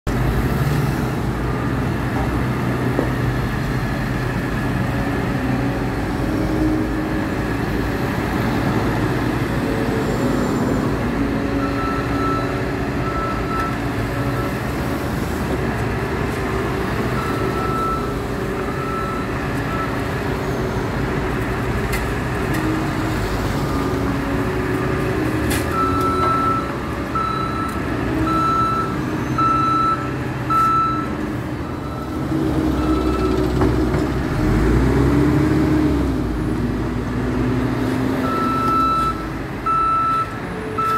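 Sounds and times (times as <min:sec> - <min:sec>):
reversing alarm beeping: 0:11.6 - 0:14.6, 0:17.2 - 0:20.8, 0:25.8 - 0:33.4, 0:38.2 - 0:40.9.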